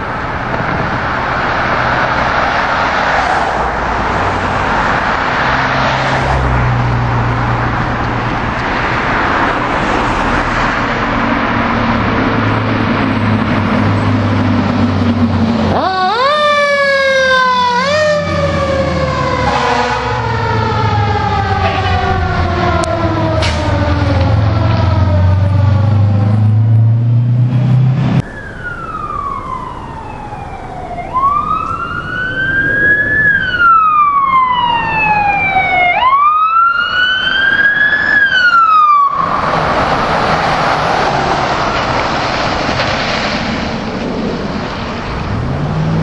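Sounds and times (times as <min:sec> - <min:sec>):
siren wailing: 0:15.7 - 0:41.9.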